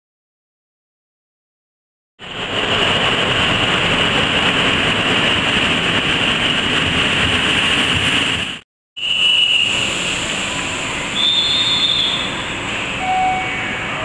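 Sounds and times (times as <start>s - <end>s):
train wheels running on rails: 2.2s - 8.6s, 9.5s - 14.0s
high steady tone: 10.5s - 14.0s.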